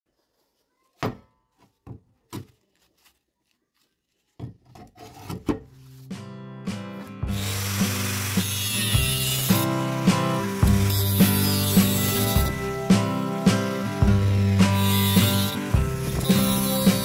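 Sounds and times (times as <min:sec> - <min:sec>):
background music with steady beat: 0:05.9 - 0:17.0
angle grinder cutting metal: 0:07.2 - 0:17.0.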